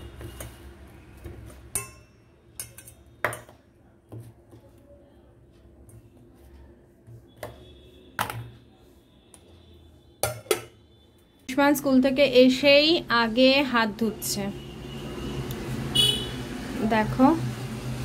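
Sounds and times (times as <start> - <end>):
metal bowls knocking on table: 8.2 - 8.6, 10.2 - 10.8.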